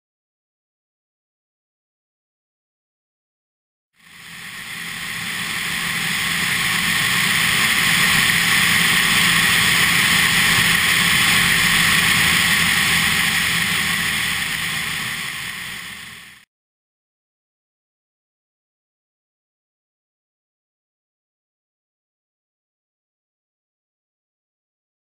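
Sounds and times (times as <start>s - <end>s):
wind rush in flight: 4.0s - 16.4s
aircraft engine and propeller drone: 4.0s - 16.5s.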